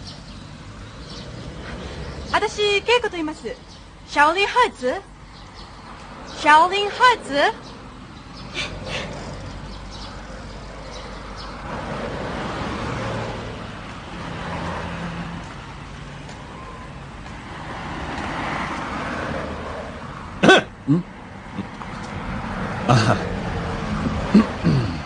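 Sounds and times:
passing road traffic: 0.0 - 25.0.

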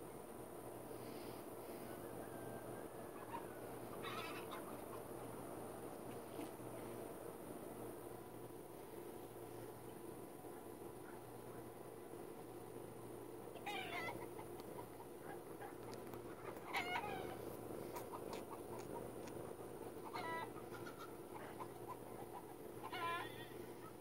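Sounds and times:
steady low hum: 0.0 - 24.0
chickens calling: 1.7 - 6.8, 13.5 - 24.0.

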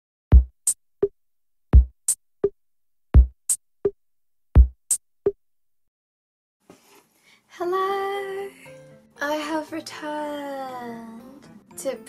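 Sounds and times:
drum-machine beat: 0.3 - 1.2, 1.8 - 2.6, 3.2 - 4.0, 4.6 - 5.4.

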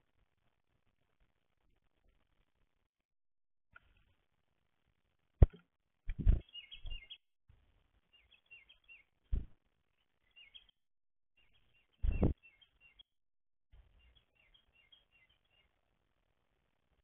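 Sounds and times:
small birds chirping: 5.5 - 7.2, 8.0 - 10.8, 11.4 - 13.1, 13.8 - 16.0.

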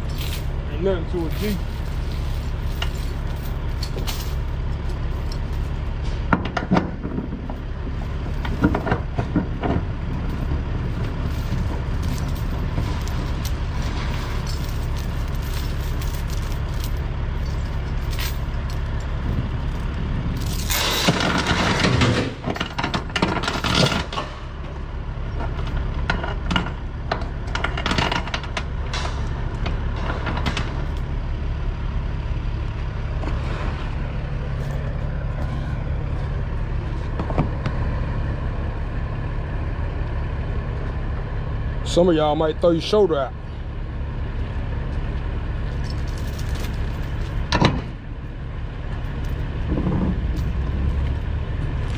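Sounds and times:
steel chains clanking: 0.0 - 5.8, 11.2 - 24.3, 45.7 - 47.6
steady low rumble: 0.0 - 51.9.

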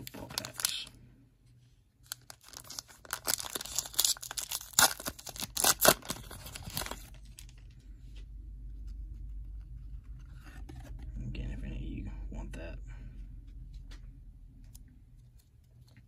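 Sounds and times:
foil wrapper crinkling and tearing: 0.0 - 0.9, 2.0 - 7.6.

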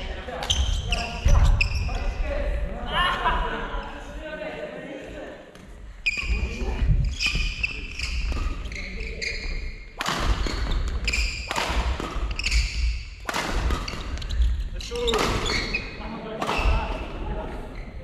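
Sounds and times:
sports shoes squeaking: 0.3 - 2.2, 6.0 - 17.0
racket hitting shuttlecock: 10.0 - 14.4, 15.0 - 15.8.

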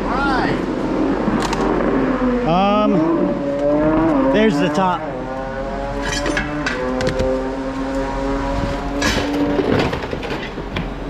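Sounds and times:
metal scrap clanking: 9.0 - 10.7.

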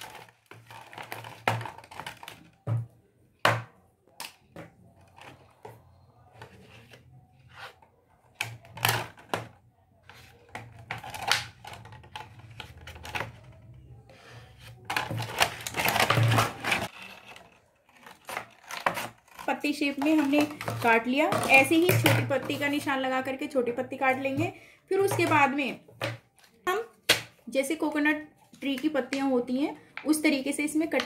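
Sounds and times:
plastic sheet crinkling and clicking: 0.0 - 2.6
scissors cutting plastic: 14.8 - 20.7.

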